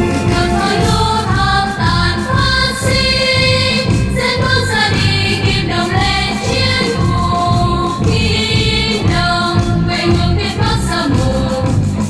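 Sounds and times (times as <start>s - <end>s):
choir singing over a beat: 0.0s - 12.0s.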